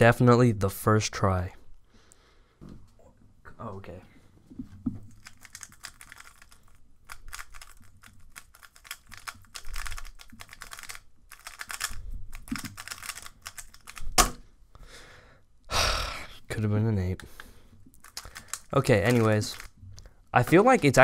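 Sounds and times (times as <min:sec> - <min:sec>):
puzzle cube plastic clicks: 0:05.2 - 0:14.3, 0:18.0 - 0:19.8.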